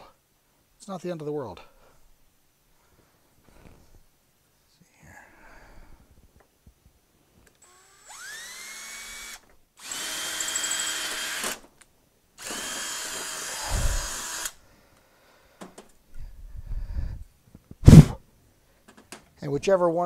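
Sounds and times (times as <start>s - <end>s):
cordless drill whining: 7.6s - 11.7s, 12.4s - 14.6s
low thumps: 17.8s - 18.2s
sharp loud knock: 17.8s - 18.2s.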